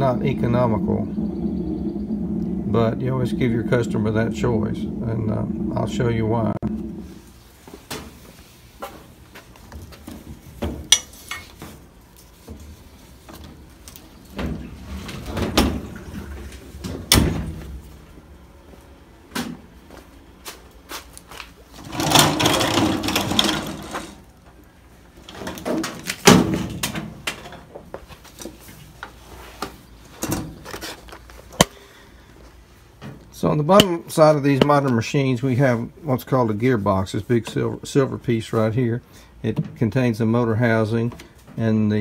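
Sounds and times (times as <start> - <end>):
scraping rush: 0.0 - 7.5.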